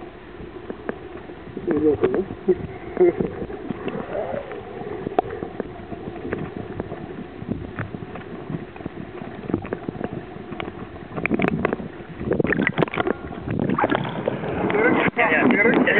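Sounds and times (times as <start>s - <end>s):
muffled underwater noise: 0.0s - 15.9s.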